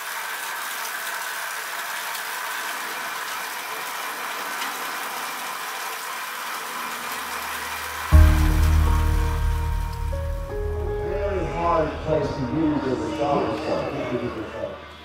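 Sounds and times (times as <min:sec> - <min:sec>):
low hum: 0:08.1 - 0:14.0.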